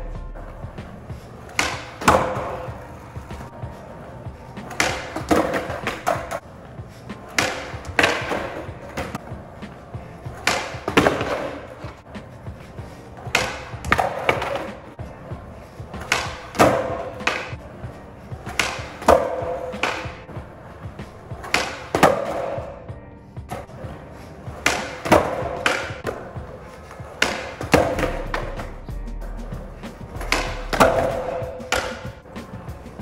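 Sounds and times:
skateboard clacking on concrete: 0:00.6 - 0:22.8, 0:23.5 - 0:28.8, 0:30.0 - 0:33.0
skateboard tail pops: 0:01.5 - 0:02.7, 0:04.6 - 0:06.4, 0:16.0 - 0:17.6, 0:18.5 - 0:20.2, 0:21.0 - 0:22.6, 0:30.2 - 0:32.5.

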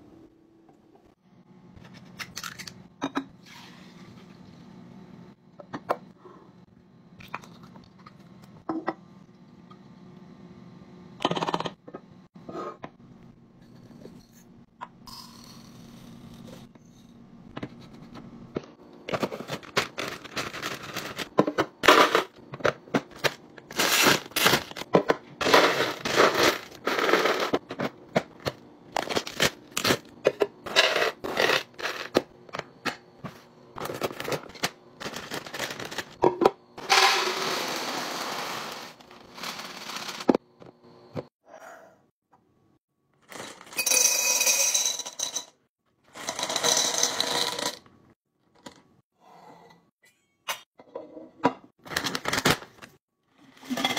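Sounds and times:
plastic bags rustling: 0:19.2 - 0:21.4, 0:33.8 - 0:36.2.

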